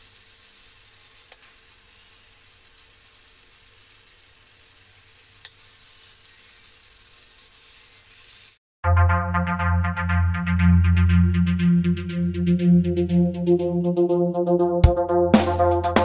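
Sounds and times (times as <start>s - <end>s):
small motor whining: 0.0s - 8.6s.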